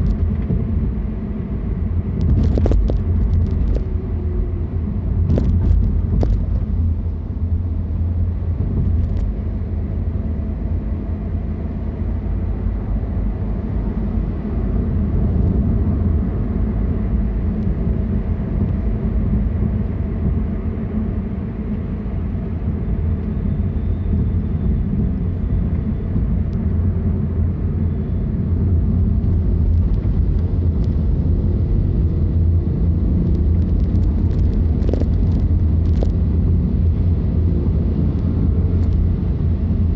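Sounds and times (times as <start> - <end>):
car engine and road noise: 0.0 - 39.9.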